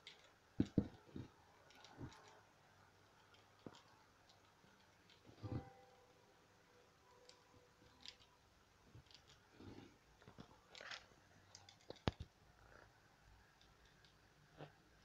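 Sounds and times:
light clicks and knocks on wood: 0.0 - 2.4.

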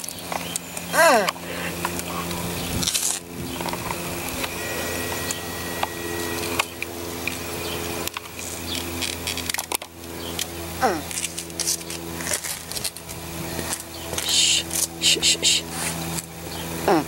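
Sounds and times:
low mechanical hum: 0.0 - 17.0
camera handling rustle: 8.1 - 14.9.

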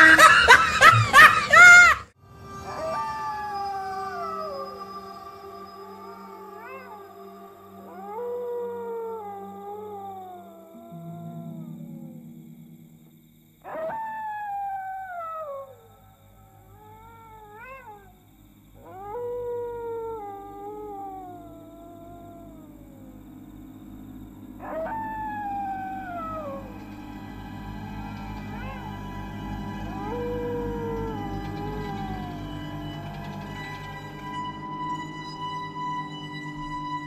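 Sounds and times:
dog howling: 0.0 - 12.3, 13.6 - 18.2, 18.8 - 37.0
low steady hum: 18.0 - 37.0.

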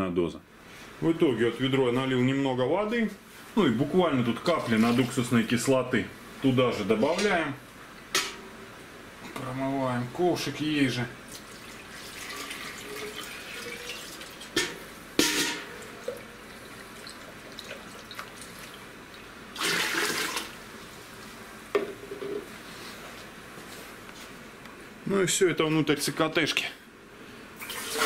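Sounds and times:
liquid pouring and swirling: 11.4 - 14.5.

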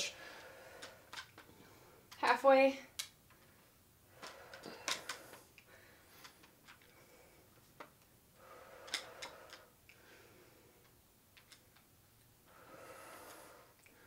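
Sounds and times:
dumbbells clicking: 2.9 - 7.2, 7.8 - 10.1.

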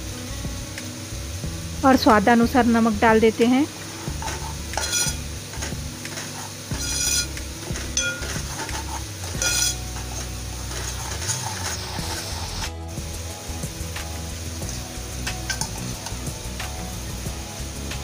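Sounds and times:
oil sizzling: 0.0 - 18.0
metal spoon clinking on pot: 4.2 - 7.3, 7.9 - 11.4.

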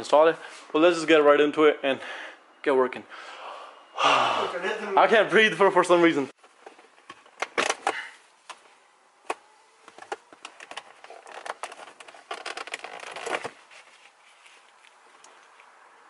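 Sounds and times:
plastic frame scraping: 10.0 - 14.5.

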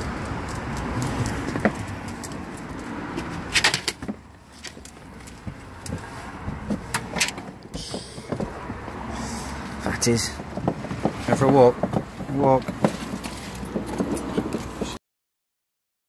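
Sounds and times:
traffic hum: 0.0 - 15.0.

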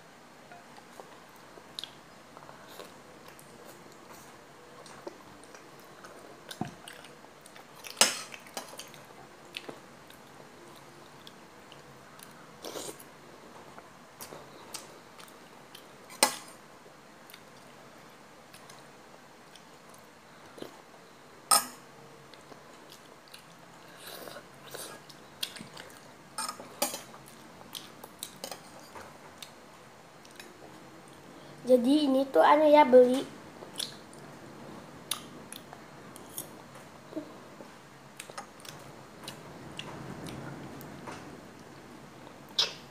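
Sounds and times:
person chewing: 4.8 - 13.1, 38.2 - 40.5, 42.5 - 42.8
cutlery clinking against bowl: 21.5 - 21.8.

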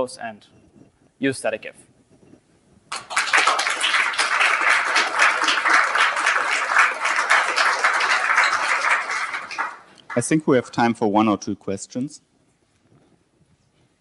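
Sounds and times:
audience applauding: 2.9 - 10.4.

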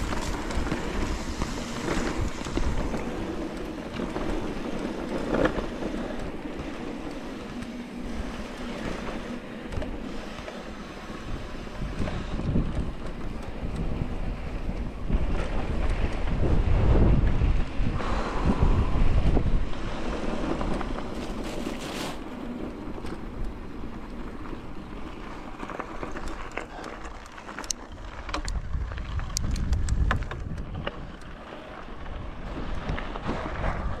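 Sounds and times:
sharp clicks and ticks: 0.0 - 17.4, 25.7 - 31.4
wind buffeting microphone: 0.0 - 26.5, 27.9 - 34.0.

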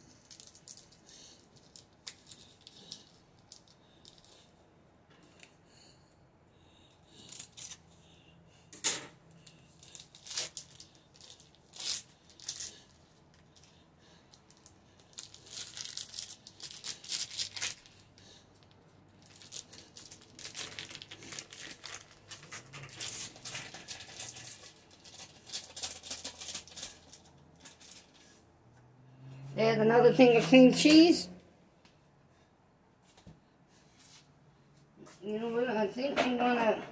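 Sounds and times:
foil wrapper crinkling: 9.6 - 13.7, 14.4 - 28.2.

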